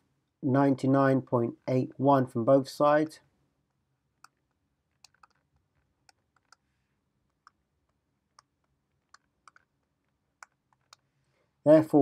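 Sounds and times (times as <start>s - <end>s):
stylus tapping tablet screen: 3.7s - 11.1s.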